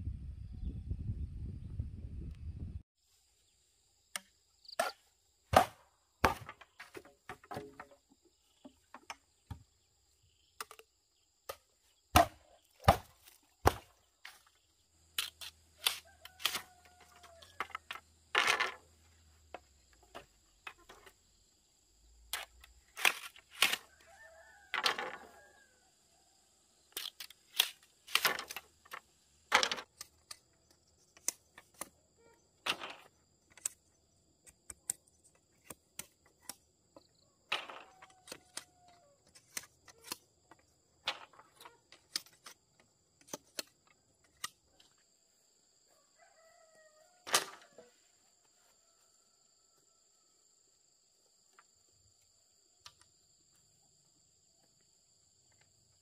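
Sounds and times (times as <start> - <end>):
machete chopping bamboo: 4.2 - 7.9, 11.5 - 14.0, 15.2 - 16.7, 22.3 - 23.9.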